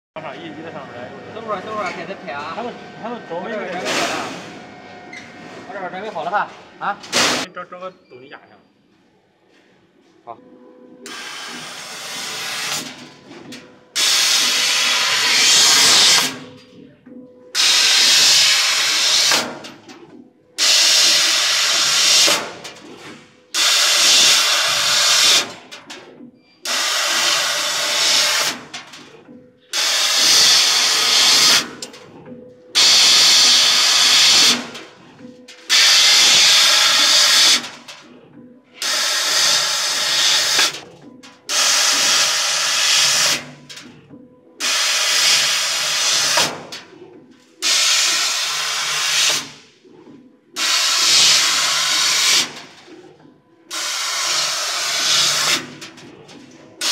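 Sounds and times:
gas jet hissing: 1.4 - 4.6, 11.1 - 12.9, 14.0 - 16.4, 17.6 - 19.5, 20.6 - 22.6, 23.6 - 25.5, 26.6 - 28.6, 29.7 - 31.8, 32.8 - 34.7, 35.6 - 37.8, 38.8 - 40.8, 50.6 - 52.6.

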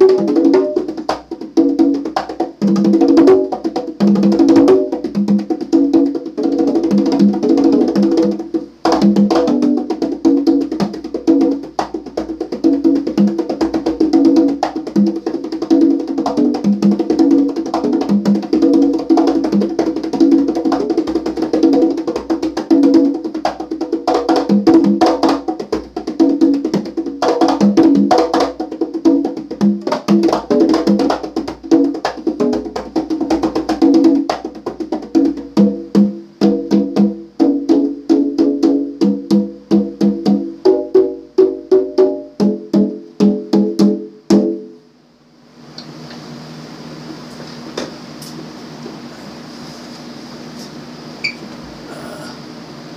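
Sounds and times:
conga drums played by hand: 0.0 - 44.8.

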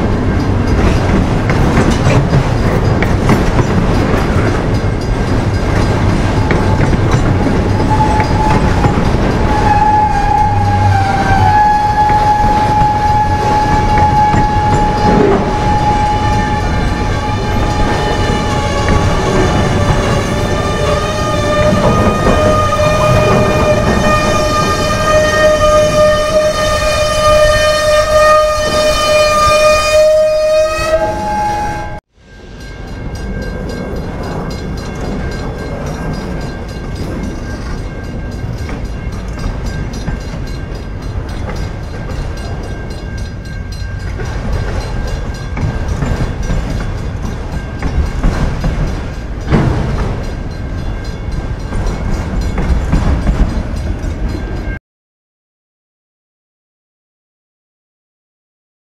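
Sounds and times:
freight car wheels rumbling: 0.0 - 26.0
high wheel squeal: 6.3 - 26.5
locomotive horn: 6.3 - 32.0.

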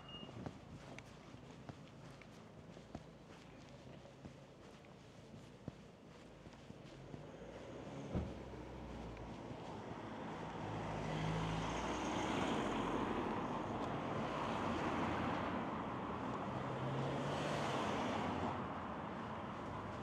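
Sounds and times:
passing vehicles: 6.8 - 20.0.

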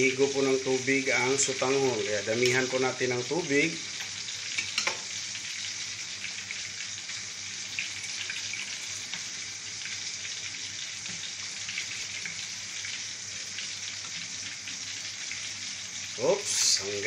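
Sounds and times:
pot hissing and crackling: 0.0 - 17.0
water pouring into pot: 3.6 - 17.0.

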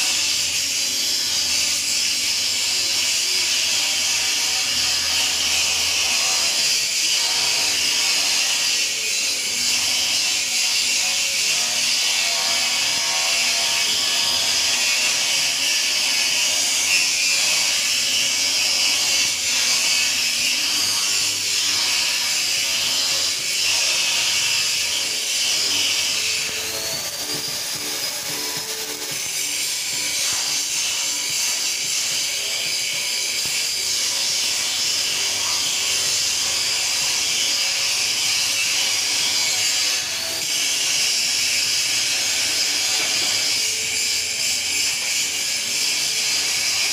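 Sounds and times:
welding arc crackling hiss: 25.6 - 33.7.

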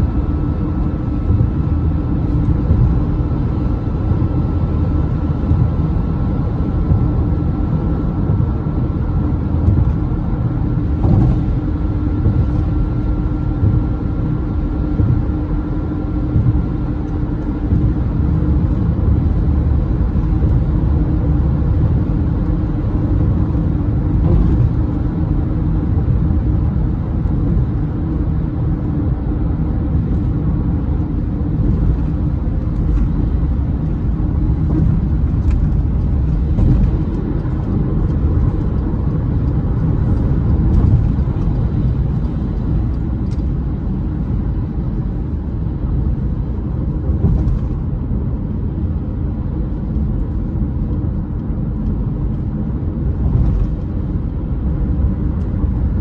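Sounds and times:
car cruising rumble: 0.0 - 56.0
tyre and road noise: 0.0 - 56.0.

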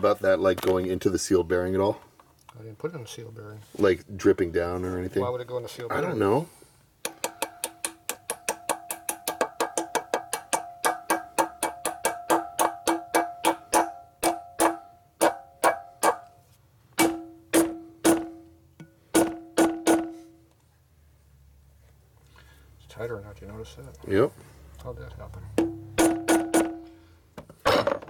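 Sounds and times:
hammer striking metal: 7.0 - 16.2, 17.0 - 20.3, 25.6 - 27.0.

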